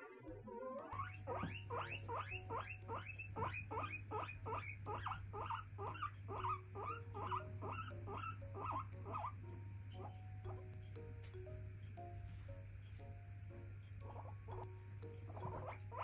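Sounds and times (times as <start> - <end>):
guinea pig wheeking: 0.0 - 10.8, 14.0 - 16.0.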